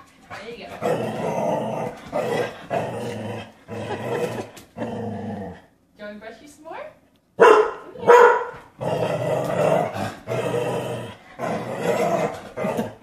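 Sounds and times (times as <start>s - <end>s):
dog growling: 0.3s - 5.8s, 7.9s - 13.0s
dog barking: 7.4s - 8.6s.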